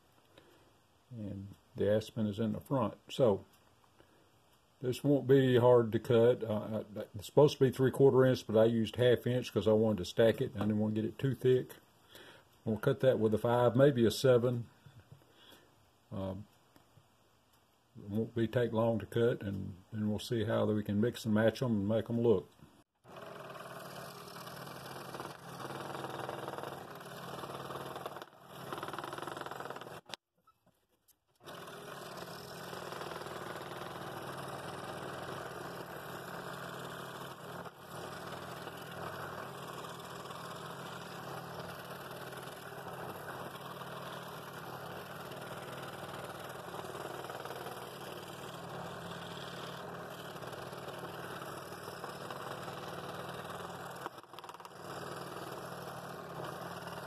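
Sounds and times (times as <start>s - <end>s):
scroll saw cutting wood: 23.0s - 30.2s, 31.4s - 57.0s.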